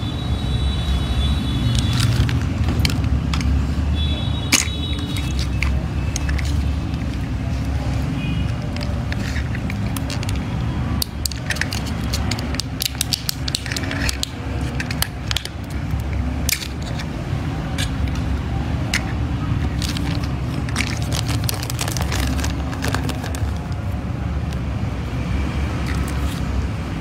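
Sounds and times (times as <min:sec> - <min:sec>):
plastic packaging crinkling: 0:01.7 - 0:03.7, 0:04.5 - 0:24.0.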